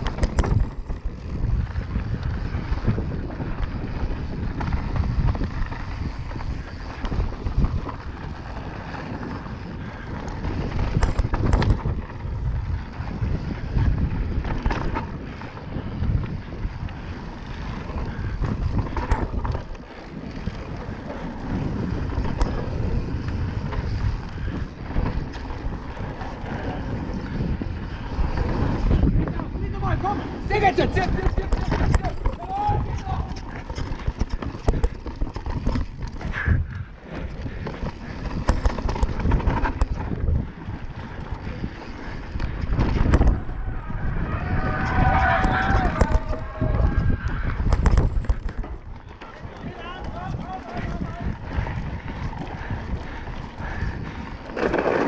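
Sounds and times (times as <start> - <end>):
bike knocking on bumps: 0.0 - 43.5, 45.0 - 55.0
bike tyres rumbling and rattling: 0.0 - 55.0
wind buffeting microphone: 0.0 - 55.0.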